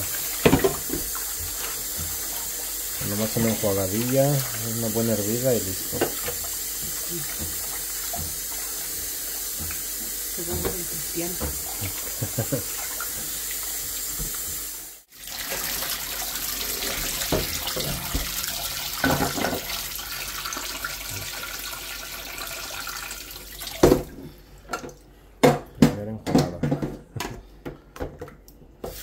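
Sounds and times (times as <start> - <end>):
water splashing: 0.0 - 9.8
faucet running into metal pot: 0.0 - 24.0.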